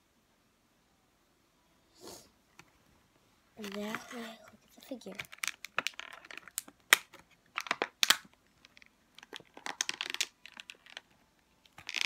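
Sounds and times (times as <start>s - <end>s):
plastic packaging crackling: 4.9s - 12.0s.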